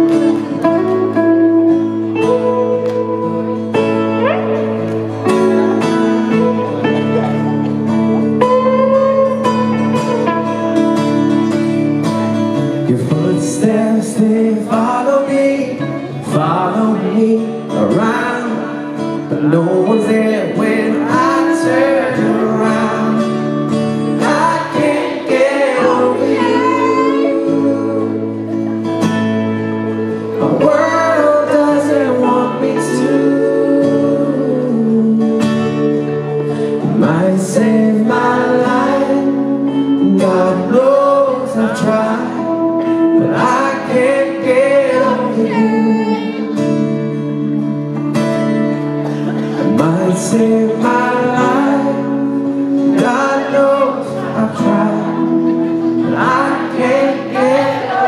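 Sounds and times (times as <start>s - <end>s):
acoustic guitar chords: 0.0s - 58.0s
man singing into a microphone: 12.6s - 28.7s, 30.2s - 47.3s, 49.2s - 58.0s.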